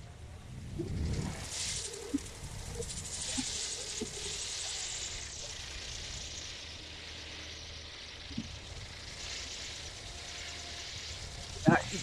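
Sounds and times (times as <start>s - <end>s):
wind rumbling on microphone: 0.0s - 6.4s, 10.8s - 12.0s
wind turbine blades whirring: 0.0s - 12.0s.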